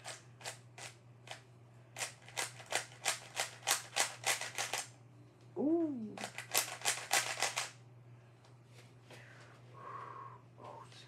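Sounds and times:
puzzle cube clicking: 0:02.0 - 0:04.9, 0:06.1 - 0:07.7
person making brief voiced sound: 0:05.6 - 0:06.2.

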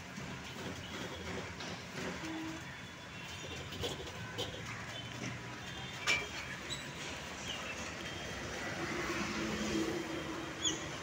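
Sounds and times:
vehicle passing: 0:07.9 - 0:11.0.

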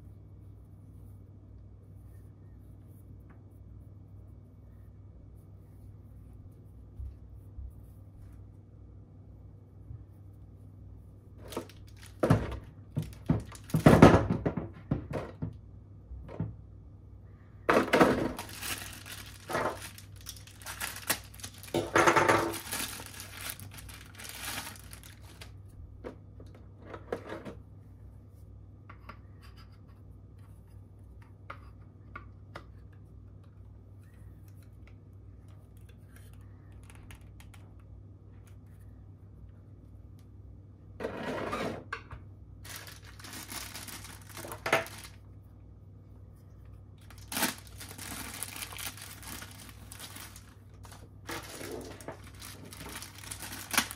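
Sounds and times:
plastic packaging crinkling: 0:11.4 - 0:14.0, 0:18.3 - 0:25.6, 0:42.6 - 0:45.2, 0:47.0 - 0:53.9.

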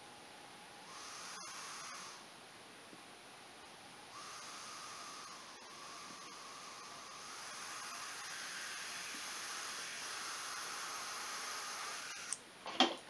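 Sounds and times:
air hissing from bleeder screw: 0:04.1 - 0:12.4.

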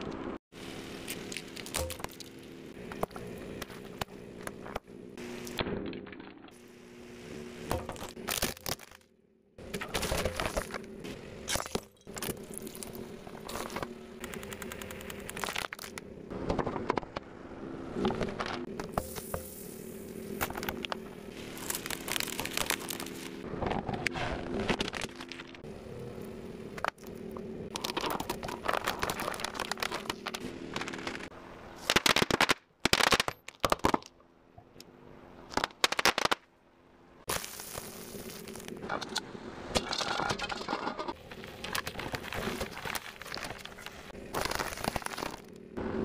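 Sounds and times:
tyre crushing brittle objects: 0:01.0 - 0:04.5, 0:07.7 - 0:09.1, 0:09.7 - 0:10.9, 0:11.5 - 0:16.0, 0:20.4 - 0:23.4, 0:27.7 - 0:34.1, 0:39.8 - 0:45.7.

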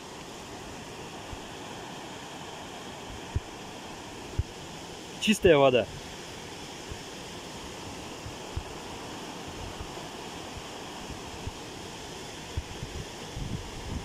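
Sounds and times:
water rushing over stones: 0:00.0 - 0:14.0
wind buffeting microphone: 0:12.5 - 0:14.0.

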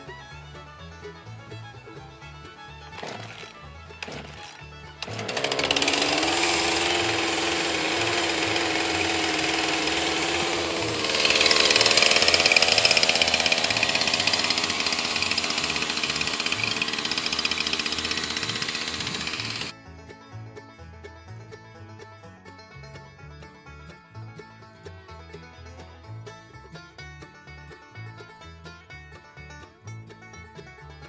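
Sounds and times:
chainsaw running: 0:02.9 - 0:19.8.

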